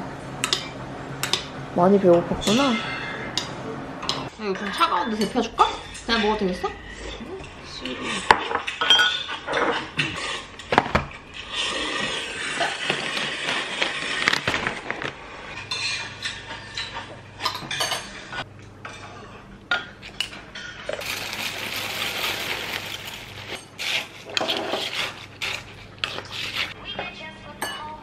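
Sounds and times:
tableware clinking and knocking: 0:08.2 - 0:11.2.

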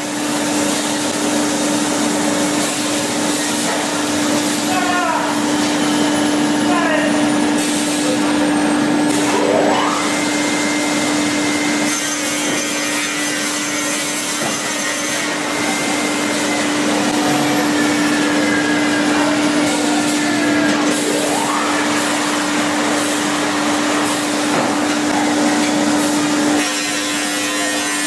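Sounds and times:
edge-trimming saw running: 0:00.0 - 0:28.0
rising machine whine: 0:08.5 - 0:11.3, 0:20.0 - 0:24.4.

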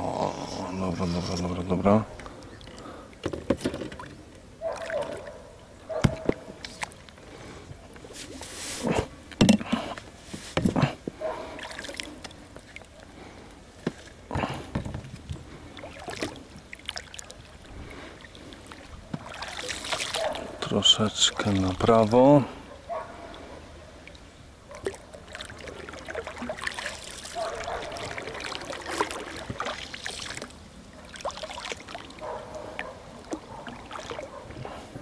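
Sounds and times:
oars splashing in water: 0:00.6 - 0:35.0
knocks against rubber boat: 0:06.0 - 0:06.5.

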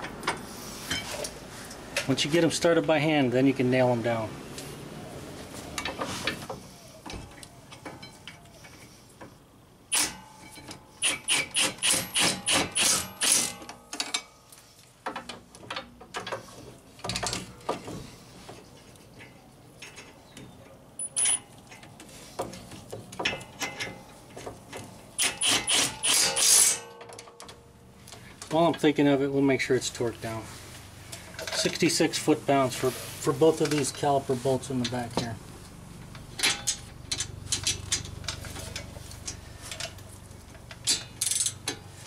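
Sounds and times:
impact wrench bursts: 0:11.0 - 0:13.7, 0:25.2 - 0:26.8.

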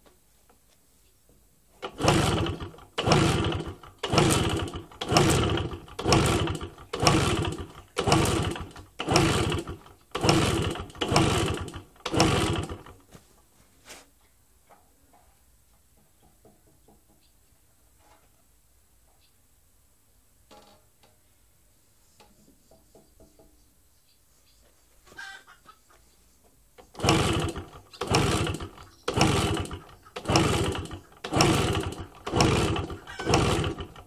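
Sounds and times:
moped engine kick-starting: 0:01.8 - 0:13.0, 0:26.8 - 0:34.0.

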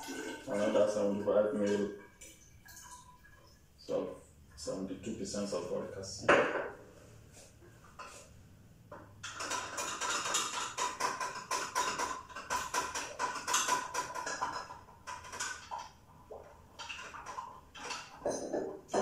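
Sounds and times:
stirring rod clinking on glass: 0:16.8 - 0:19.0.

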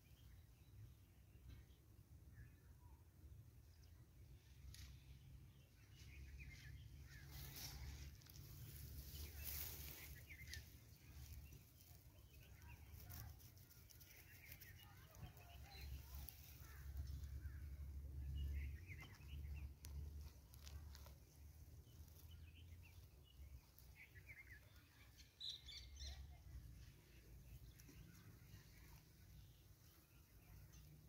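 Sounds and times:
low uneven rumble: 0:03.5 - 0:25.2
faint bird chirps: 0:22.1 - 0:31.0.

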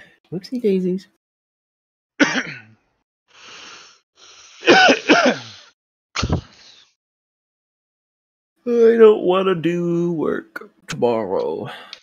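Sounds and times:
person clearing throat: 0:02.2 - 0:02.7, 0:04.7 - 0:05.5
person coughing: 0:02.2 - 0:02.7, 0:04.6 - 0:05.6
person breathing: 0:03.3 - 0:04.6, 0:11.7 - 0:12.0.

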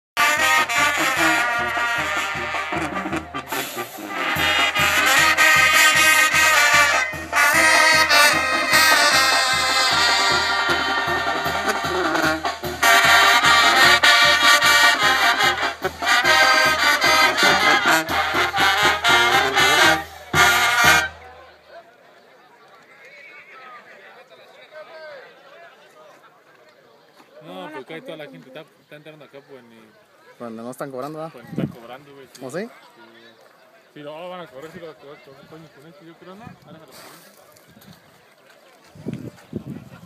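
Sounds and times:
brass band music: 0:00.2 - 0:21.6
steady bass beat: 0:04.3 - 0:19.7.

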